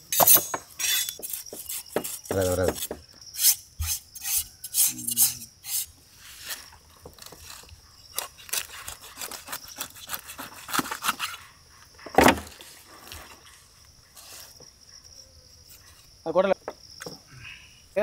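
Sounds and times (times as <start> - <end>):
knife scraping fish skin: 0.1 - 11.4.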